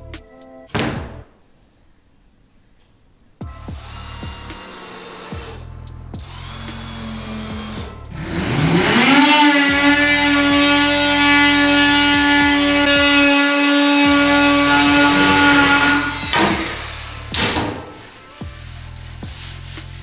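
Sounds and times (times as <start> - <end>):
power tool motor whine: 3.7 - 5.6, 6.2 - 19.2.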